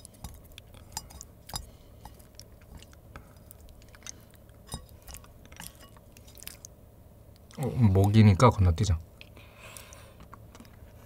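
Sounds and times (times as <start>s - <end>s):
quiet chewing: 0.0s - 8.2s, 9.2s - 11.0s
chopsticks tapping a bowl: 0.2s - 2.2s.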